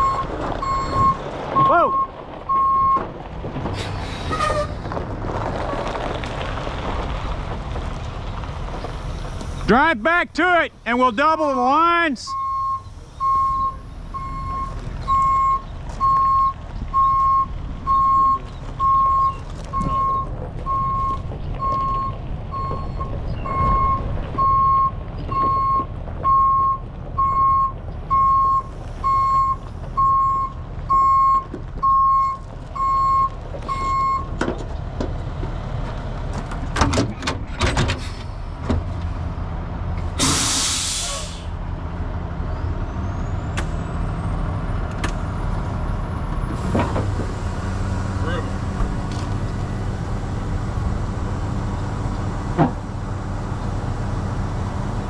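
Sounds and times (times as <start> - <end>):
diesel engine running: 0.0 - 55.0
air brakes hissing: 3.8 - 4.8, 40.2 - 41.6
back-up alarm beeping: 12.3 - 34.3.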